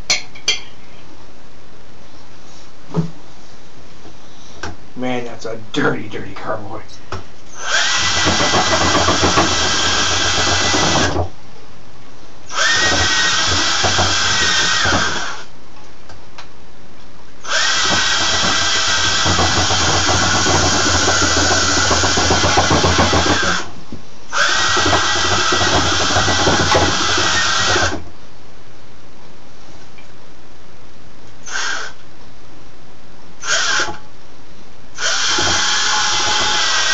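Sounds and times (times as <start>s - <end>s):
cordless drill whining: 7.6s - 11.2s, 12.5s - 15.5s, 17.4s - 23.7s, 24.3s - 28.0s, 31.4s - 32.0s, 33.4s - 34.0s, 35.0s - 36.9s.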